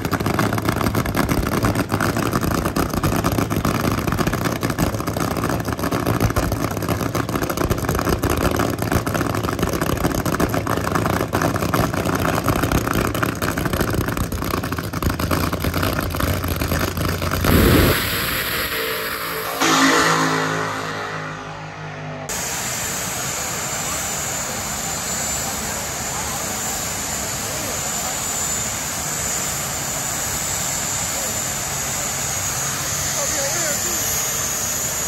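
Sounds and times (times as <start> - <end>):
car engine running: 0.0 - 22.3
dense rumbling noise: 14.8 - 22.7.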